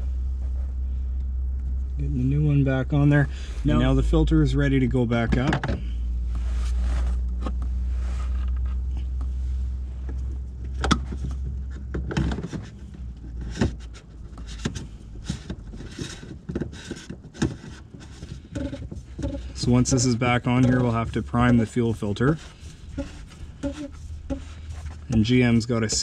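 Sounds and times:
steady low hum: 0:00.0 - 0:26.0
plastic filter clicking and scraping: 0:10.1 - 0:26.0.

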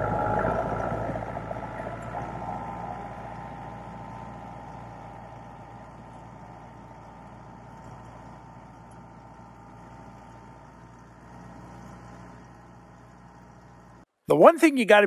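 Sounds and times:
tractor diesel engine running: 0:00.0 - 0:14.5.

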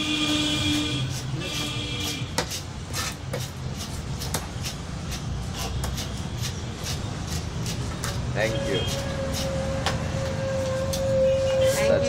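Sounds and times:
cleaver chopping on wooden block: 0:04.2 - 0:06.2.

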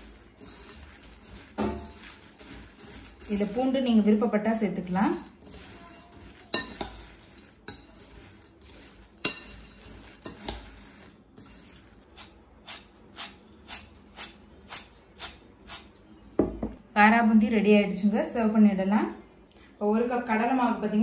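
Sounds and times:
metal spoon stirring in ceramic bowl: 0:00.0 - 0:15.9.

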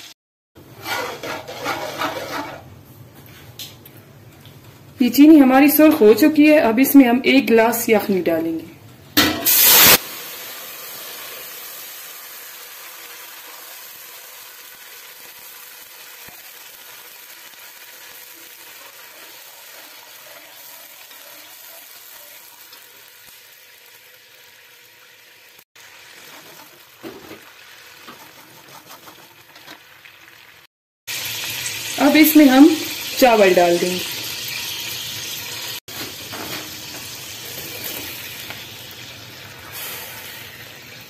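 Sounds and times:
ladle stirring: 0:00.6 - 0:02.7, 0:28.0 - 0:29.8
sizzling bubbling hiss: 0:09.2 - 0:28.2, 0:29.6 - 0:41.0.

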